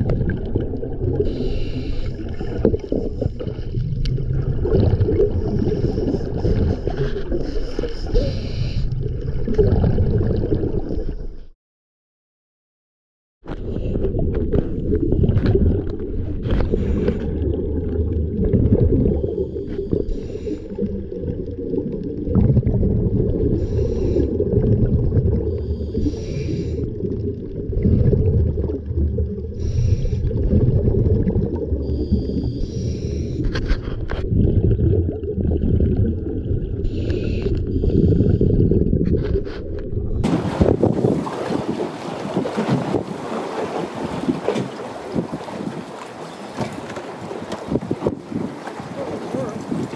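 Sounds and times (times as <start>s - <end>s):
underwater low rumble: 0.0s - 11.5s, 13.5s - 49.9s
diver breathing: 1.2s - 3.7s, 5.4s - 9.0s, 16.4s - 17.4s, 19.1s - 21.1s, 23.5s - 24.5s, 25.4s - 27.0s, 29.5s - 30.5s, 31.8s - 34.1s, 36.8s - 39.9s.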